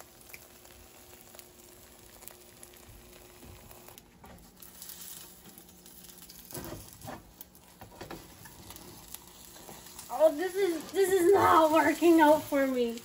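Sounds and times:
egg frying in pan: 0.0s - 13.0s
spatula scraping pan: 6.5s - 12.6s.

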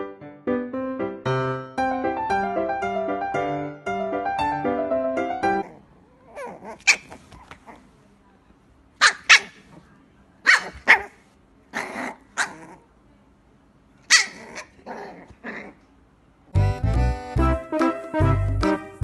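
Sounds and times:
puppy yapping: 5.6s - 7.8s, 9.0s - 9.7s, 10.4s - 12.8s, 14.1s - 15.8s.

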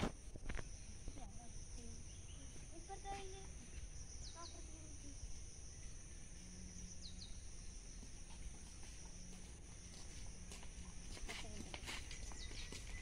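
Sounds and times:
high-pitched insect drone: 0.6s - 11.3s
bird chirps: 2.0s - 8.2s, 12.1s - 13.0s.

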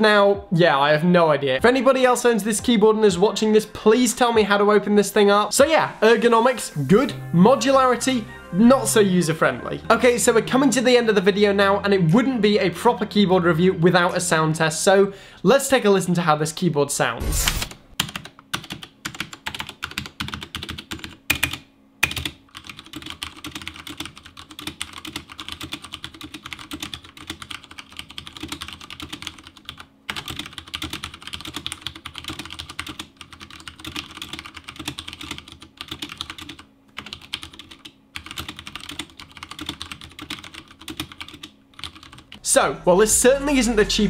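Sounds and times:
mechanical keyboard typing: 17.5s - 42.4s.

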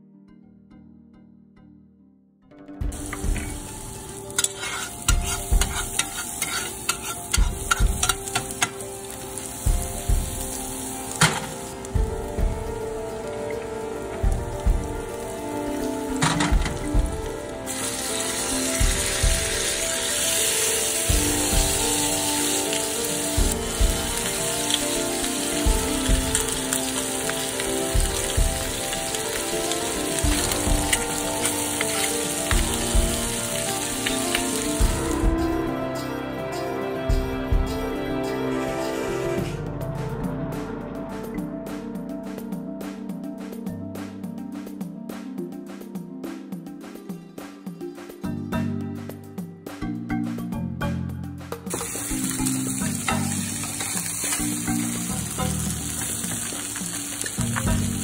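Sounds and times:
background music: 0.0s - 58.0s
garlic sizzling in butter: 2.9s - 35.7s, 51.7s - 58.0s
spoon scraping a pan: 4.3s - 8.8s, 51.7s - 55.0s
low thumps in music: 9.7s - 13.1s, 14.2s - 17.6s, 18.8s - 19.8s, 21.1s - 22.2s, 23.4s - 24.4s, 25.6s - 26.8s, 32.5s - 33.4s, 34.7s - 36.1s, 37.1s - 38.4s.

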